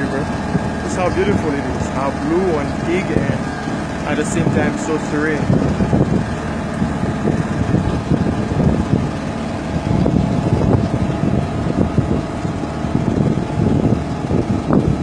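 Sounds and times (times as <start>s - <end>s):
motorboat engine running: 0.0s - 15.0s
wind buffeting microphone: 0.0s - 15.0s.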